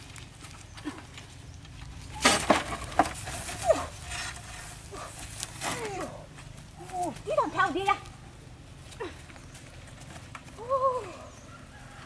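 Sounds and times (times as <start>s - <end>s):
metal wheelbarrow rattling: 0.0s - 8.0s.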